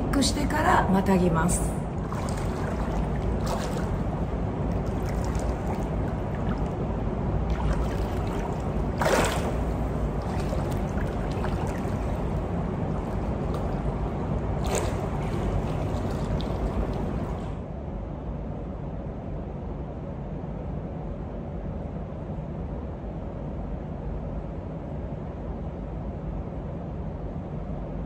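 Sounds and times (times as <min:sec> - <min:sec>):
steady background noise: 0:00.0 - 0:28.0
pool water splashing: 0:02.0 - 0:17.6.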